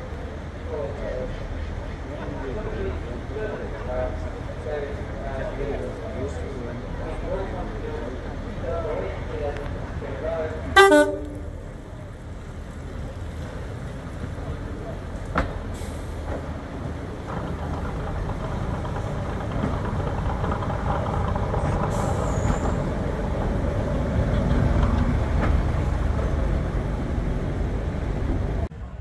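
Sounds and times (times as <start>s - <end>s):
railcar diesel engines running: 0.0s - 29.0s
brief high squeal: 10.8s - 11.6s.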